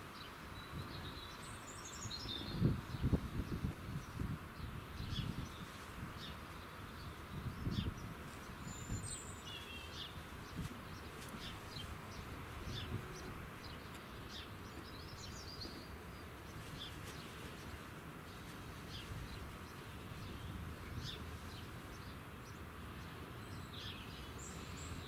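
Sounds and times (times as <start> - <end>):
small birds chirping: 0.0 - 25.0
wind buffeting microphone: 2.2 - 22.1.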